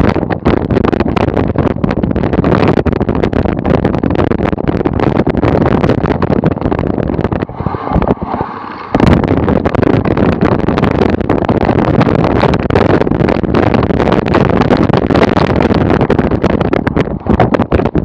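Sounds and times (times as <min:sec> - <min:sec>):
wind on microphone: 0:00.0 - 0:18.0
bike rattling over bumpy grass: 0:00.1 - 0:18.0.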